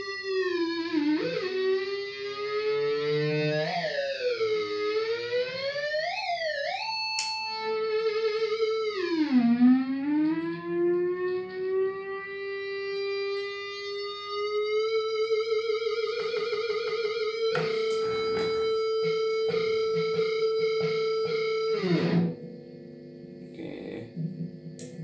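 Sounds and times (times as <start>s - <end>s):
sustained electric guitar note: 7.6s - 25.0s.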